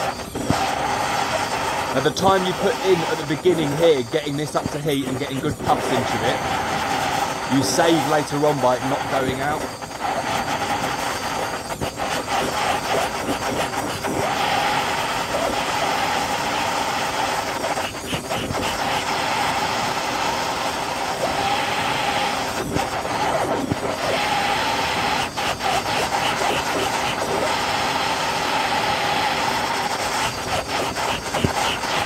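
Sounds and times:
blowtorch hissing: 0.0s - 32.0s.

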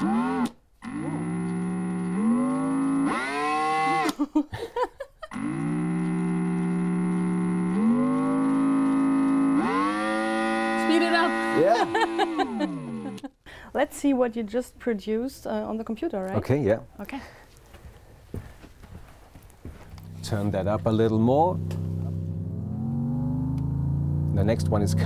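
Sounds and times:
buzzing drill drone through amplifier: 0.0s - 4.1s, 5.3s - 13.3s, 19.9s - 24.4s.

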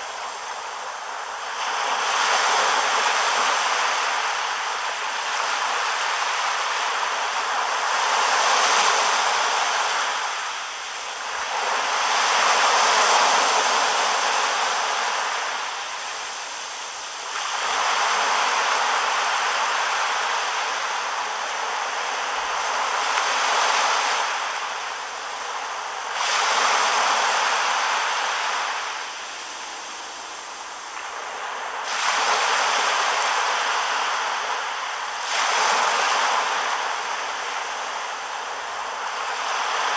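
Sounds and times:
surf breaking on a beach: 0.0s - 39.9s.

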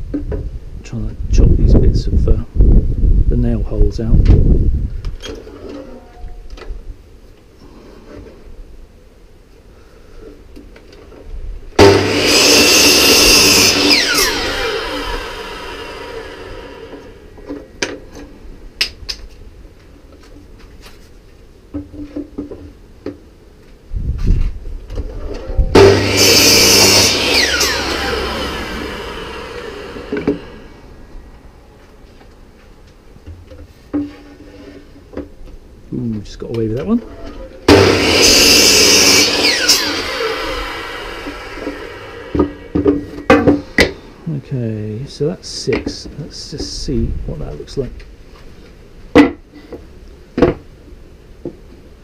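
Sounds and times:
mitre saw cutting wood: 11.8s - 17.3s, 25.7s - 30.9s, 37.7s - 43.9s.

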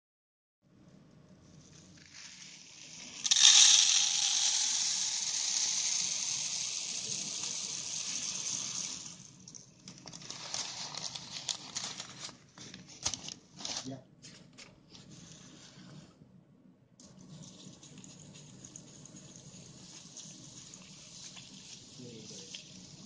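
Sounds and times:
water hissing and fizzing: 2.0s - 9.5s, 17.4s - 23.0s.

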